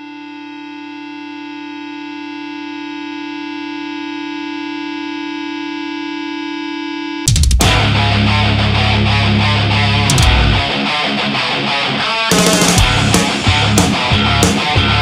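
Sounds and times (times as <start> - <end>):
electronic drone of held tones: 0.0 - 7.2.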